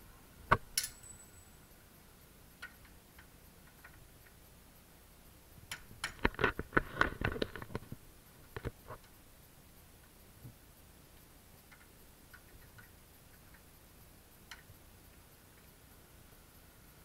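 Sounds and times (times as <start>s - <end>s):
short metallic ring: 0.8s - 1.8s.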